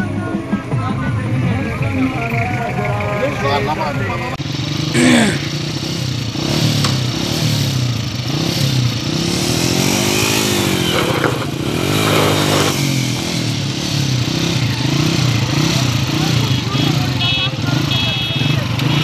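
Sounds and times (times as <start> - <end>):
small motorcycle engine revving: 4.4 - 19.0
wind and road noise: 5.6 - 16.6.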